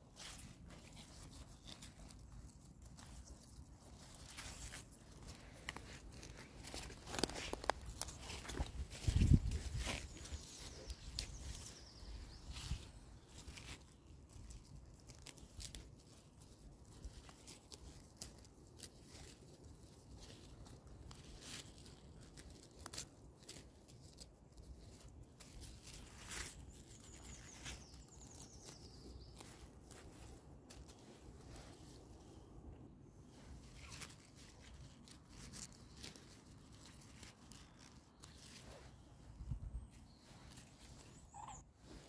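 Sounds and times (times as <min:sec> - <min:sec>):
leaves rustling: 0:00.0 - 0:42.0
plant stems snapping: 0:00.7 - 0:10.4.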